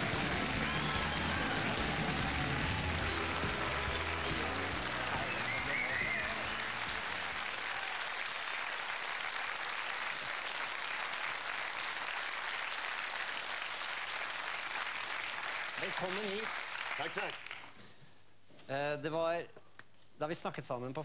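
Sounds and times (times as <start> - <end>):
entrance music: 0.0 - 7.4
audience applauding: 0.0 - 17.8.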